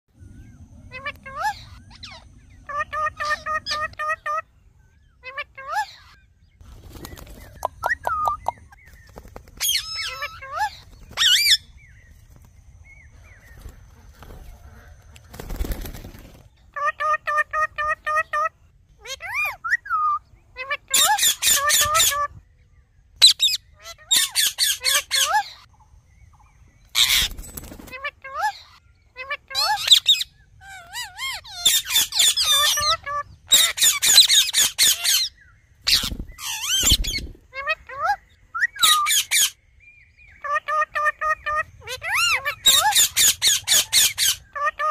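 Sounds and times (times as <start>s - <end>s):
parakeets chirping and whistling: 0.2s - 4.4s, 5.2s - 9.0s, 9.6s - 12.3s, 16.8s - 22.4s, 23.2s - 25.7s, 26.6s - 39.6s, 40.2s - 44.9s
parakeets screeching: 0.9s - 4.4s, 5.2s - 6.4s, 9.6s - 11.8s, 13.4s - 22.4s, 23.2s - 25.7s, 26.8s - 39.6s, 40.3s - 44.9s.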